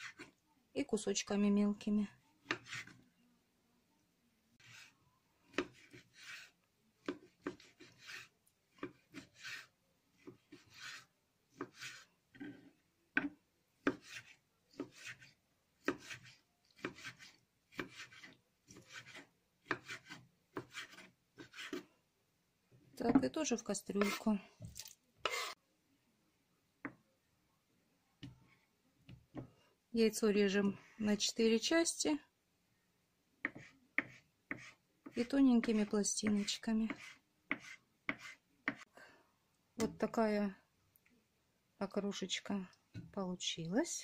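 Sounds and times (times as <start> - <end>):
knife slicing ham on wooden board: 5.5 - 12.6, 13.2 - 21.8.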